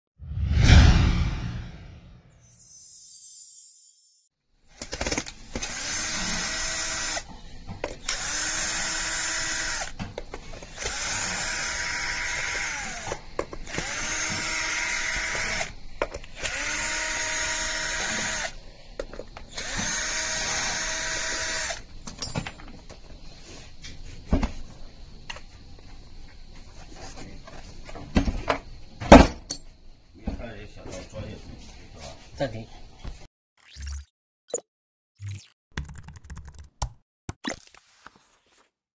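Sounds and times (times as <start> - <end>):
cordless drill whining: 5.6 - 7.3, 8.0 - 10.0, 10.7 - 15.7, 16.4 - 18.6, 19.5 - 21.8.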